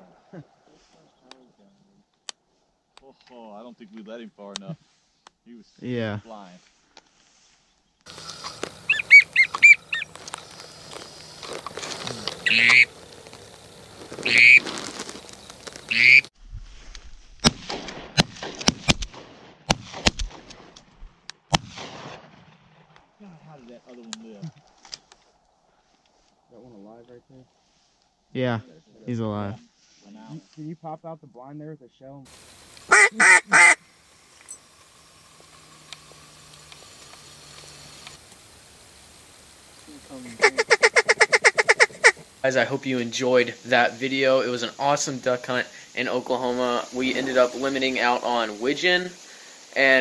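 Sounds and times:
hunting horn call: 0:08.1 - 0:13.1, 0:14.1 - 0:14.8, 0:15.9 - 0:16.3, 0:32.8 - 0:33.8, 0:40.2 - 0:42.3
faint ticks: 0:08.1 - 0:16.0, 0:35.3 - 0:38.5
duck quacking: 0:08.2 - 0:10.1, 0:12.2 - 0:12.9, 0:14.2 - 0:14.6, 0:15.9 - 0:16.3, 0:32.9 - 0:33.8, 0:40.2 - 0:42.2
shotgun shots: 0:17.4 - 0:20.8, 0:21.5 - 0:22.9.

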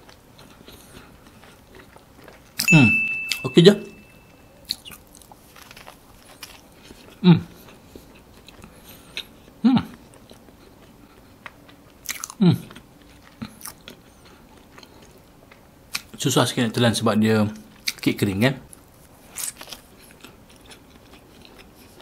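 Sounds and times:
close chewing of cake: 0:00.0 - 0:03.4, 0:04.1 - 0:16.2, 0:17.5 - 0:22.0.

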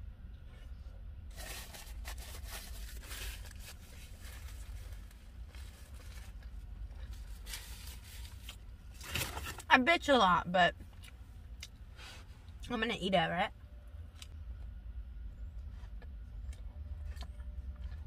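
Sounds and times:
paper packaging rustling: 0:01.3 - 0:09.6.

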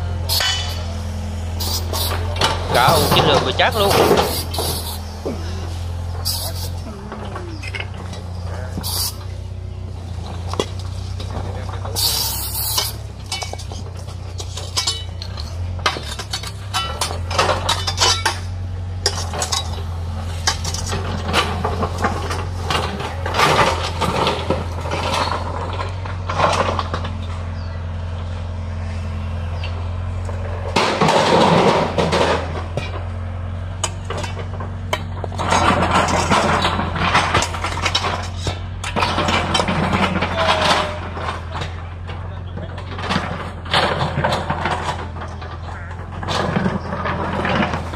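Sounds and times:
engine running steadily: 0:00.0 - 0:47.9
metal hoe scraping into dirt: 0:01.6 - 0:06.9, 0:10.4 - 0:27.2, 0:33.8 - 0:41.6, 0:43.0 - 0:47.9.

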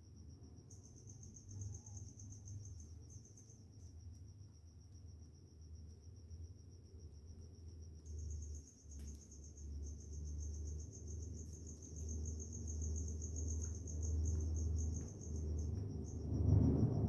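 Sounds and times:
cricket chirping: 0:00.0 - 0:17.0
low hum: 0:08.1 - 0:17.0.

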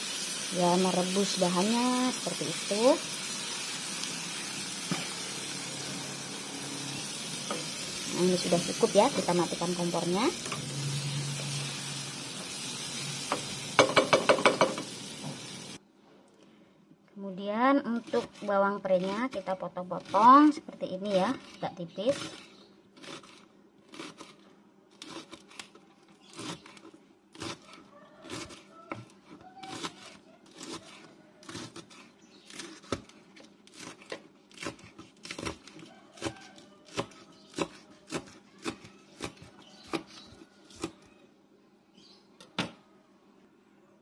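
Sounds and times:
knife chopping on wooden board: 0:13.3 - 0:14.9, 0:33.7 - 0:41.0.

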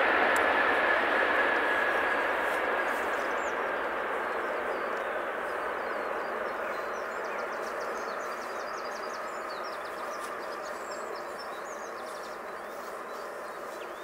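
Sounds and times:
distant jet engine rushing: 0:00.0 - 0:14.0
small birds chirping: 0:02.9 - 0:14.0.

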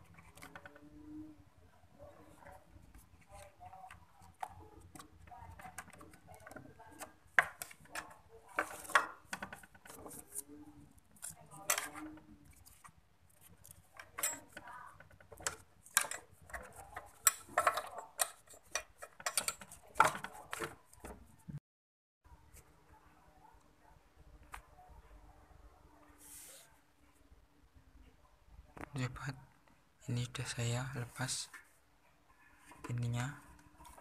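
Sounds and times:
plastic panels clicking and clattering: 0:03.2 - 0:10.3, 0:11.2 - 0:21.3.

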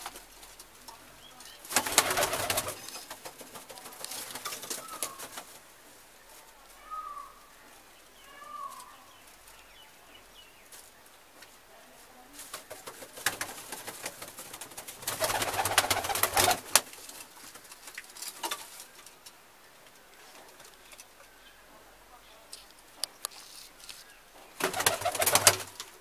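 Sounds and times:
wings flapping and rustling: 0:00.0 - 0:21.2, 0:22.4 - 0:26.0
pigeon cooing: 0:03.8 - 0:05.4, 0:06.8 - 0:07.6.

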